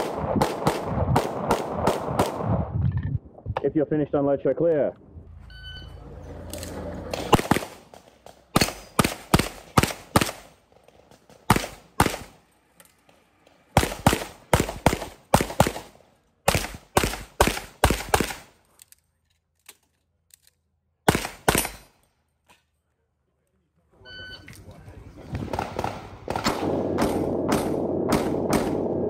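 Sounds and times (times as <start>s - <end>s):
rapid pistol shots: 0.0s - 2.5s, 7.2s - 10.6s, 11.3s - 12.4s, 13.7s - 18.5s, 21.1s - 21.8s, 25.4s - 29.0s.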